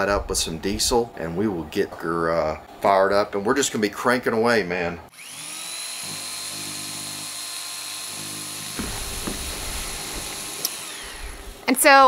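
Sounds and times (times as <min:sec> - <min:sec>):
power tool motor whining: 0:05.1 - 0:12.0
knocks: 0:08.7 - 0:10.5.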